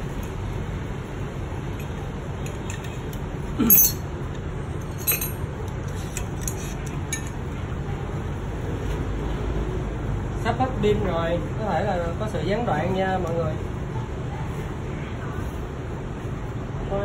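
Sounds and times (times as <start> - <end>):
metallic clinks of tools: 1.8 - 4.1, 4.8 - 5.4.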